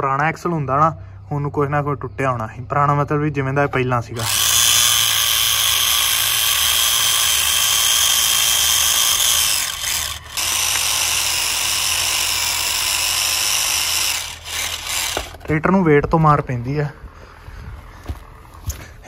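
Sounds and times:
electric motor whining: 4.2s - 15.5s.

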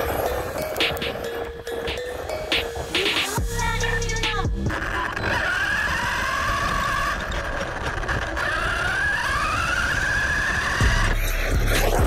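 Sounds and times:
rc truck motor whining: 4.8s - 12.0s.

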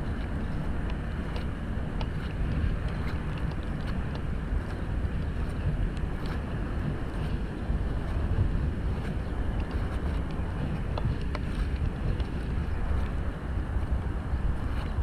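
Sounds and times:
wind buffeting microphone: 0.0s - 15.0s
light ticks: 0.1s - 6.5s.

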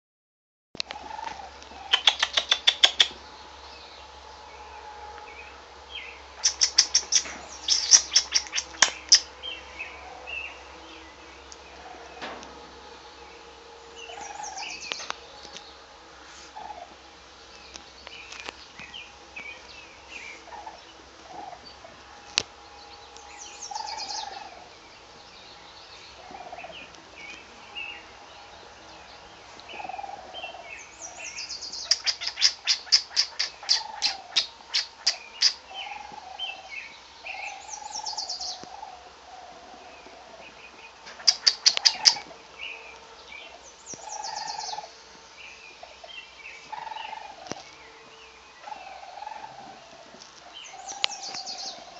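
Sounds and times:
animal chirps and squeaks: 1.8s - 3.2s, 6.4s - 9.3s, 31.7s - 36.1s, 41.1s - 42.3s.

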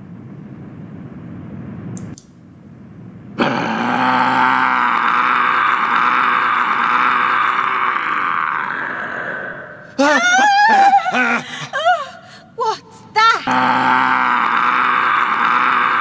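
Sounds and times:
loud long roar: 3.4s - 9.8s, 13.5s - 16.0s.

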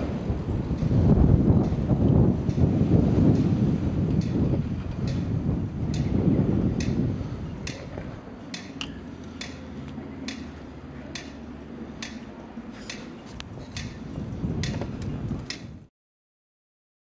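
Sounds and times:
low traffic rumble: 0.0s - 15.9s
pedestrian crossing signal ticking: 1.6s - 2.7s, 4.1s - 14.8s.

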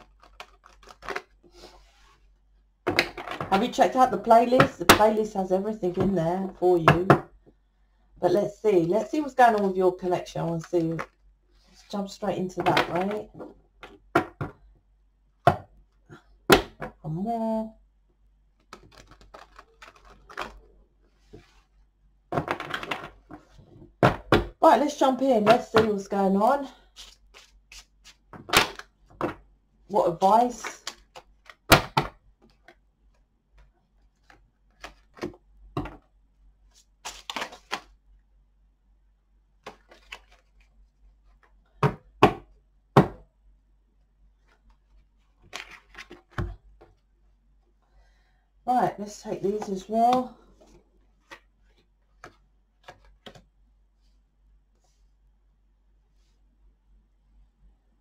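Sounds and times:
cards being shuffled: 0.0s - 1.7s, 18.6s - 20.7s, 27.0s - 28.9s, 36.8s - 38.0s, 39.6s - 41.5s, 44.4s - 46.4s, 51.2s - 53.4s.

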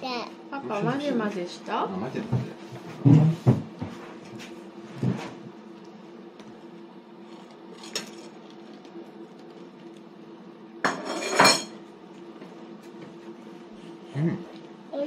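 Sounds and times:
faint steady hum: 0.0s - 15.0s
cutlery clinking on tableware: 10.9s - 11.8s.

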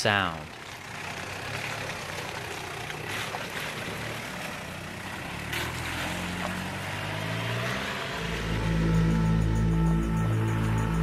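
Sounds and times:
tyres splashing through stream: 0.1s - 8.8s
diesel engine running slowly: 0.2s - 11.0s.

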